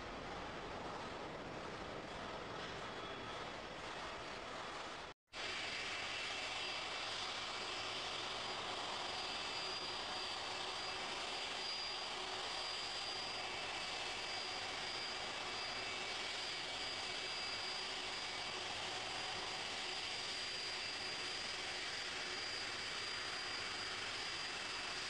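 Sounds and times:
faint high whine: 0.0 - 25.0
jet engines running: 0.0 - 25.0.

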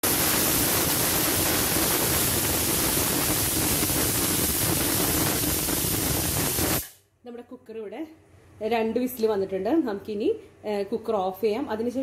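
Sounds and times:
pressure cooker steam hissing: 0.0 - 7.0.

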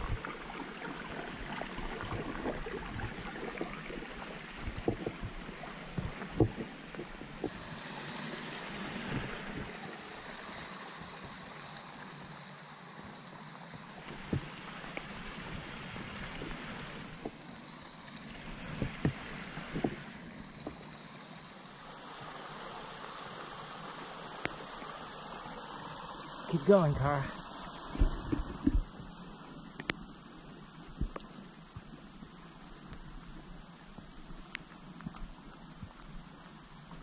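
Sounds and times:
creek water rushing over rocks: 0.0 - 37.0
rain falling: 9.0 - 37.0.

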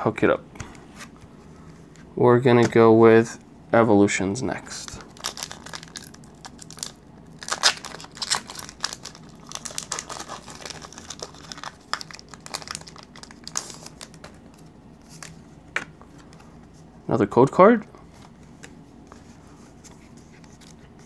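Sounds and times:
foil wrapper crinkling: 4.8 - 14.4.

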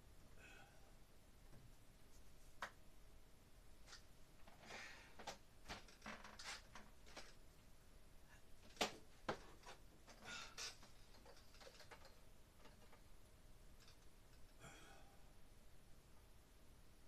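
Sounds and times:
wiring clicks and rustles: 3.8 - 7.7, 8.6 - 14.6.

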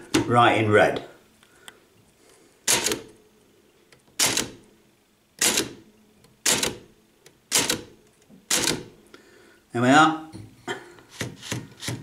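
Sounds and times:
typewriter keystrokes: 7.5 - 7.9.

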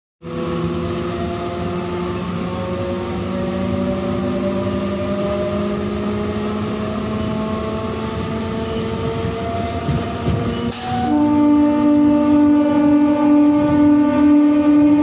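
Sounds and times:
train wheels rumbling on track: 0.2 - 15.0
electric hums drifting in pitch: 0.3 - 9.9.

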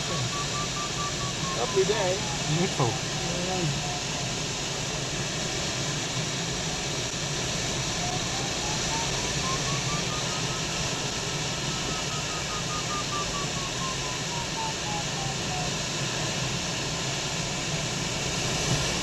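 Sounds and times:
variometer beeping rapidly: 0.0 - 4.2, 8.0 - 15.8.

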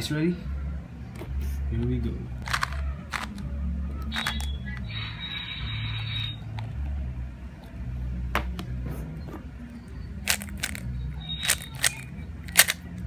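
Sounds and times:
puzzle cube clicking: 2.4 - 3.4, 4.0 - 4.9, 10.2 - 13.0.

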